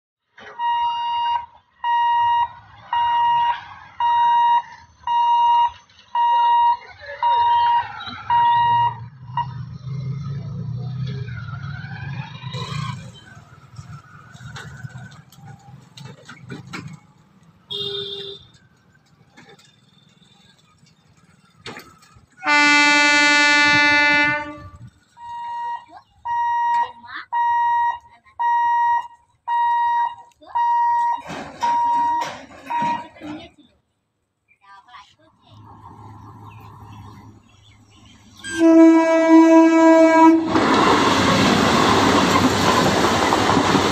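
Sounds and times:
level crossing alarm beeping: 0.5 - 9.1, 25.1 - 33.2
train horn blast: 22.4 - 24.9, 38.4 - 40.6.

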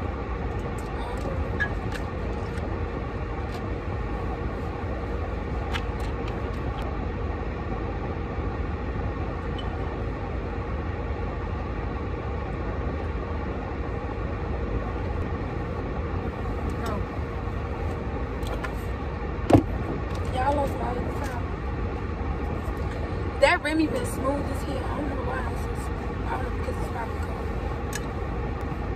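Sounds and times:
car running inside cabin: 0.0 - 28.9.

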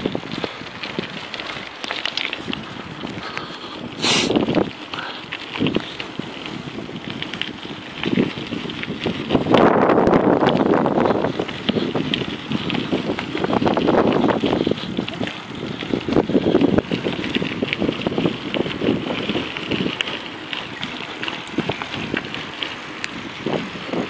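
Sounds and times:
bicycle tyres on gravel: 0.0 - 24.0
wind buffeting microphone: 0.0 - 24.0.

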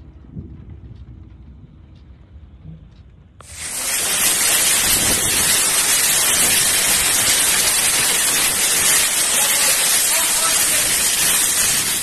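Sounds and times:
torrential rain lashing: 3.4 - 12.0.

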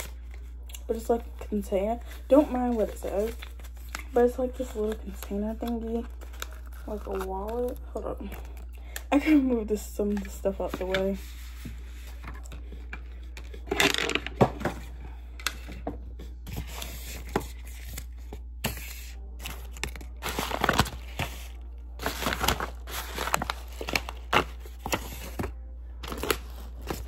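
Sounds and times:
paper and plastic bag rustling: 0.0 - 8.5, 16.5 - 27.0.

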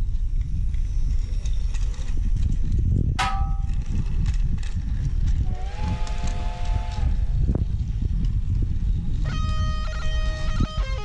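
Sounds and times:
sharp click with ringing ping: 3.2 - 3.8.

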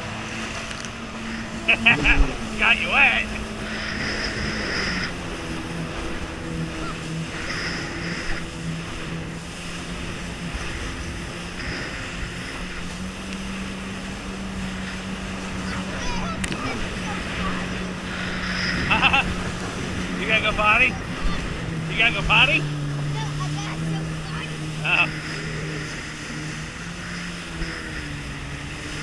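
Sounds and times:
jet ski engine running: 0.0 - 29.0
water rushing: 0.0 - 29.0
wind: 0.0 - 29.0.

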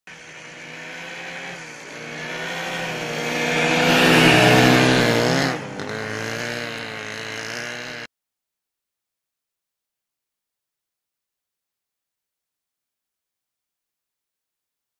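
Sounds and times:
snowmobile engine passing by: 0.1 - 8.1.

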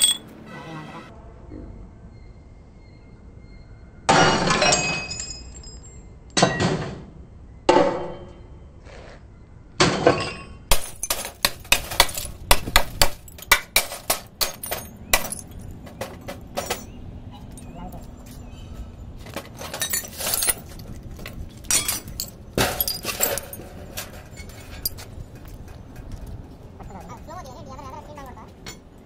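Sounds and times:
clinking glass shards: 0.0 - 0.3, 13.1 - 15.7, 19.5 - 20.9, 21.6 - 25.1
glass tube smashing: 4.1 - 5.8, 9.8 - 15.6, 19.6 - 20.8, 21.7 - 23.6.

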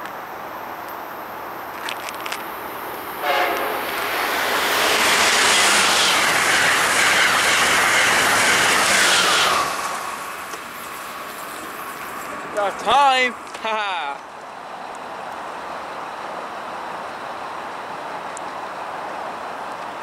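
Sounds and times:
train passing at speed: 2.4 - 20.0
train horn blast: 3.2 - 4.4.

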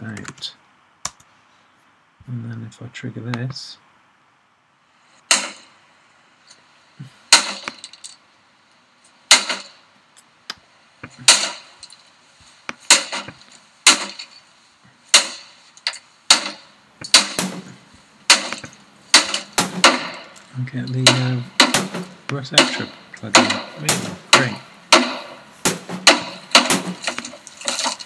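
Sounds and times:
equipment smashing: 5.2 - 5.8, 7.3 - 8.2, 9.3 - 9.8, 11.1 - 28.0
debris breaking and rattling: 9.3 - 9.8, 12.8 - 14.5, 15.1 - 28.0.

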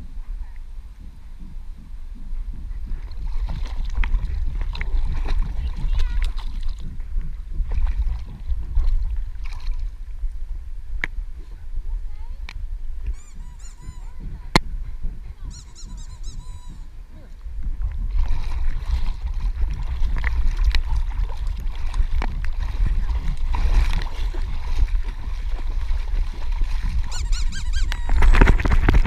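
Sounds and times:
low rumble: 0.0 - 29.0
water sloshing and splashing: 1.1 - 10.5, 17.5 - 29.0.

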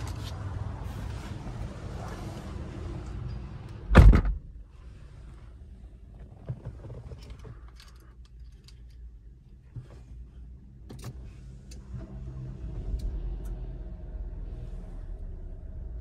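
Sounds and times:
car door slamming shut: 3.9 - 4.5
faint clicks and handling sounds: 6.1 - 11.9.

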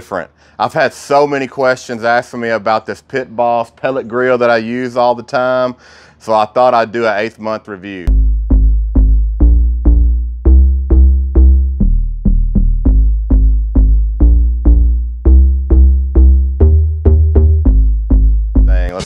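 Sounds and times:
deep bass: 8.1 - 19.0
electronic music: 8.1 - 19.0.

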